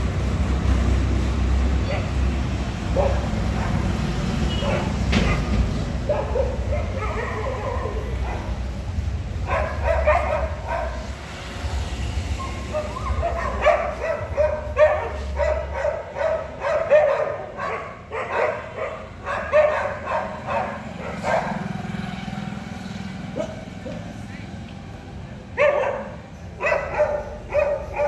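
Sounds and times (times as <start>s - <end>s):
dogs barking: 2.8s - 11.2s, 12.4s - 22.1s, 23.2s - 24.2s, 25.4s - 28.0s.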